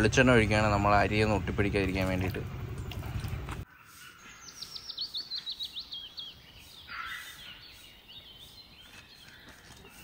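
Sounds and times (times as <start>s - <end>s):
soft bird chirps: 3.6s - 10.0s.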